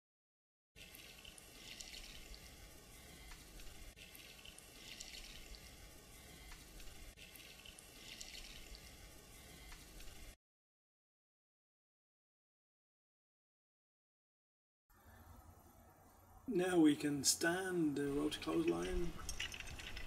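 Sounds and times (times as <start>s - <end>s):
water pouring onto concrete: 0.8s - 2.6s, 3.7s - 6.0s, 6.9s - 9.0s.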